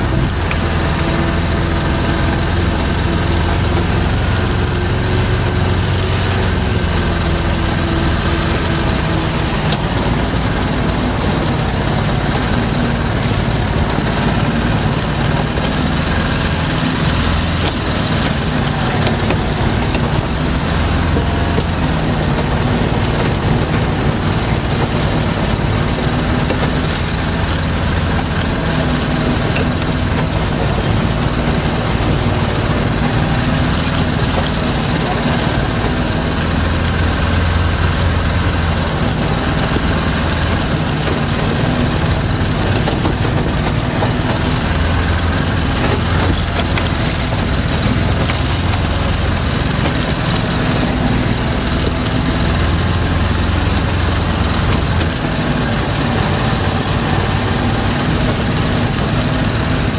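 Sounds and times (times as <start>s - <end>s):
off-road vehicle engine running: 0.0s - 59.9s.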